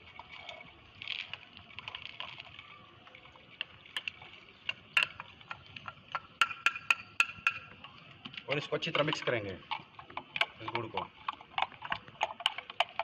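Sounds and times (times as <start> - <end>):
bowl tapping: 5.0 - 7.7.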